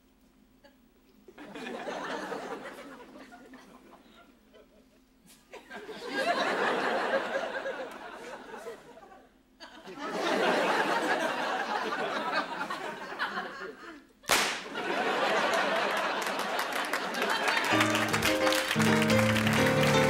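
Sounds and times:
studio audience laughing: 1.4s - 20.0s.

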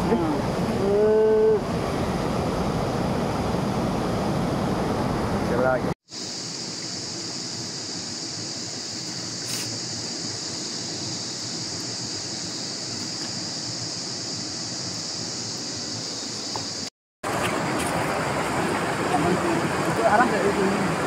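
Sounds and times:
stream flowing over rocks: 17.2s - 21.0s.

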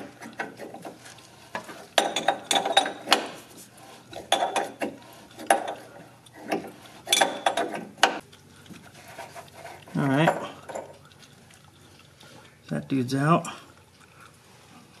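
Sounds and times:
metal parts clicking and rattling: 0.0s - 3.5s.

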